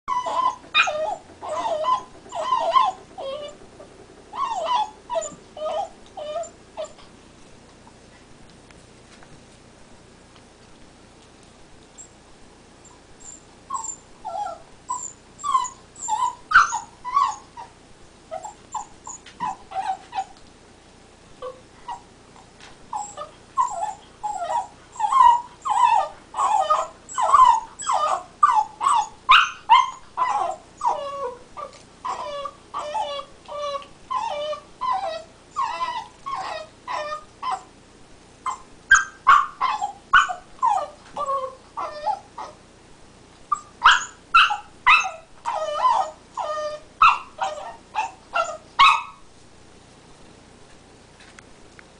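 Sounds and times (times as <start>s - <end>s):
puppy whimpering and whining: 0.1s - 7.1s, 12.8s - 20.4s, 21.4s - 37.7s, 38.4s - 42.6s, 43.5s - 49.3s.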